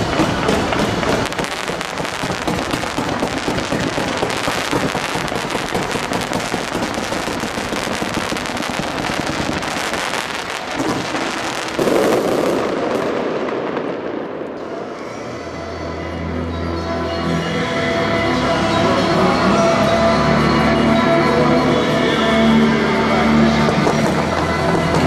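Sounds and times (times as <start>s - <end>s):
fireworks launching and crackling: 0.0s - 15.1s, 23.6s - 25.0s.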